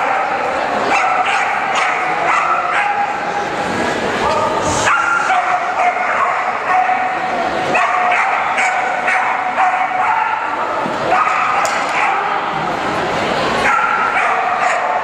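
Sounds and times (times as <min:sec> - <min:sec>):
dog barking and yelping: 0:07.8 - 0:10.5.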